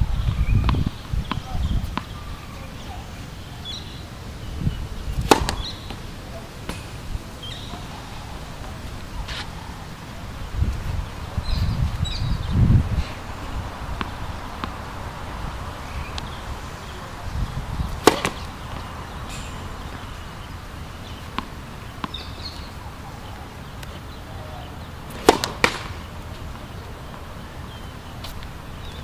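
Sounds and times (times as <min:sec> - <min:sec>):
tennis racket hitting ball: 0:05.0 - 0:09.6, 0:17.9 - 0:22.2, 0:25.0 - 0:28.4
ball bouncing on hard court: 0:05.2 - 0:06.0, 0:18.0 - 0:20.1, 0:25.1 - 0:26.1.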